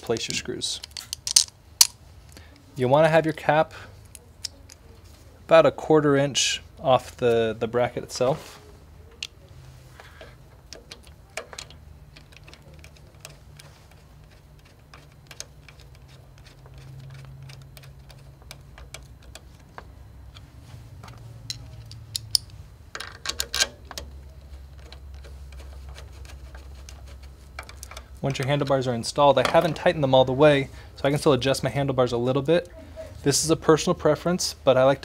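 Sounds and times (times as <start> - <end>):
metal parts rattling: 0.0 - 2.0, 10.1 - 28.2
screwdriver and screws clicking: 0.1 - 2.0, 10.6 - 28.0.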